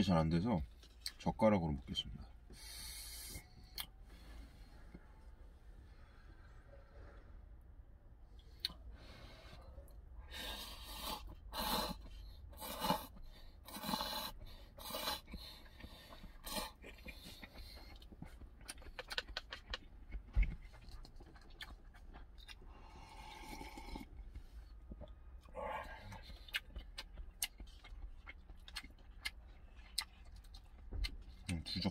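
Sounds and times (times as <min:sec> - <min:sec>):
person slurping noodles: 0:10.4 - 0:15.3, 0:22.8 - 0:24.1.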